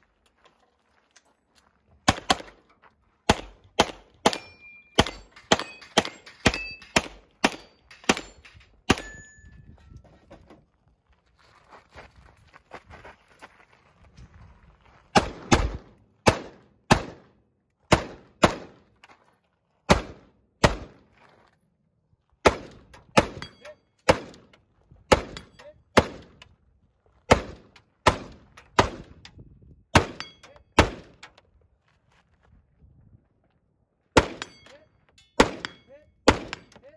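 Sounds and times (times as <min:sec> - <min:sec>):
rifle shots: 0:02.1 - 0:02.6, 0:03.3 - 0:09.2, 0:15.2 - 0:17.3, 0:17.9 - 0:18.8, 0:19.9 - 0:21.0, 0:22.4 - 0:23.5, 0:24.1 - 0:24.5, 0:25.1 - 0:26.3, 0:27.3 - 0:29.2, 0:30.0 - 0:31.2, 0:34.2 - 0:34.6, 0:35.4 - 0:36.8.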